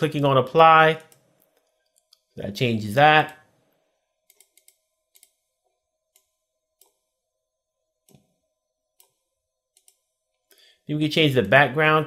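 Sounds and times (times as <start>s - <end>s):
computer mouse clicks: 1.0s - 2.3s, 4.2s - 5.5s, 6.1s - 7.1s, 9.0s - 10.2s.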